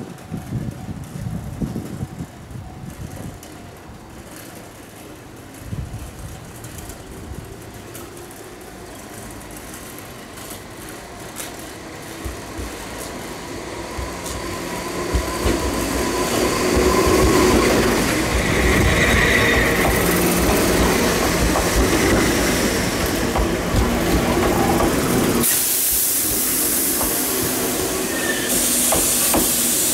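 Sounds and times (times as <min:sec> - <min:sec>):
electric train passing: 0:00.0 - 0:29.9
train wheel squeal: 0:13.4 - 0:22.9, 0:24.2 - 0:29.9.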